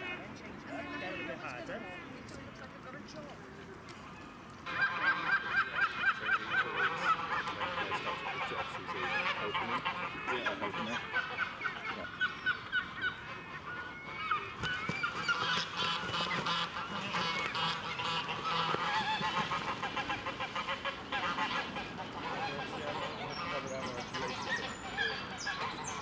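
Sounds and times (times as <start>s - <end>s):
geese honking: 4.6s - 26.0s
wings flapping: 14.2s - 25.8s
water splashing: 14.5s - 24.8s.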